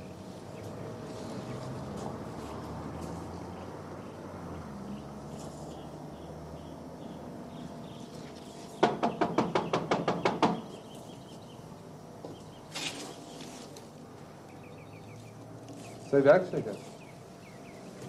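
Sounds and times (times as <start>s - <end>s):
rapid knocking on wooden door: 8.8s - 10.7s.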